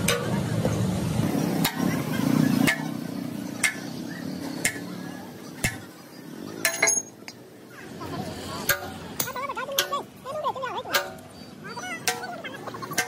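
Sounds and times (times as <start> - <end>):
sledgehammer striking metal: 8.6 - 9.9.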